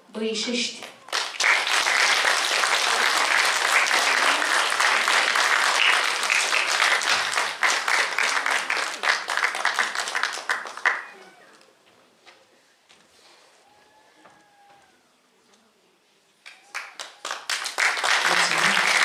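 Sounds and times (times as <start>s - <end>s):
audience applauding: 0.8s - 11.6s, 16.4s - 19.0s.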